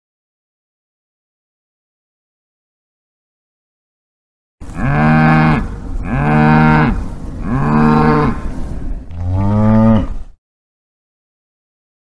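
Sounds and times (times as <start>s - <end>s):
cow mooing: 4.7s - 8.4s, 9.2s - 10.2s.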